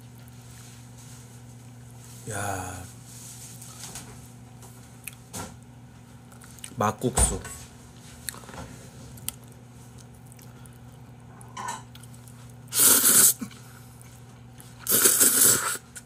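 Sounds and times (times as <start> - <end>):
person slurping noodles: 12.7 - 13.6, 14.8 - 16.0.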